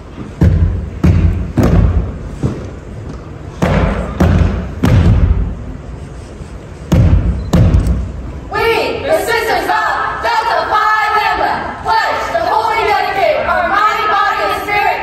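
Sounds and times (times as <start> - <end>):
stomps on a wooden stage: 0.3 - 2.8, 3.5 - 5.6, 6.9 - 8.0.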